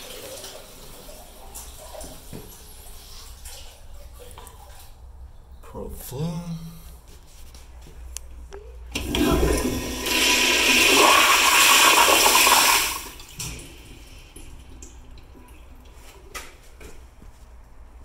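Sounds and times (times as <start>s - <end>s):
toilet flushing: 0.0s - 3.7s, 8.9s - 15.9s
water trickling: 13.1s - 16.0s.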